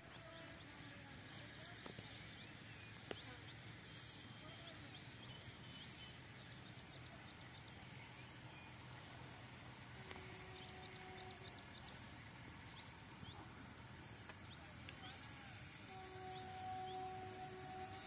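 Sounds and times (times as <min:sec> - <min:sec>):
faint held tone: 0:14.6 - 0:18.0.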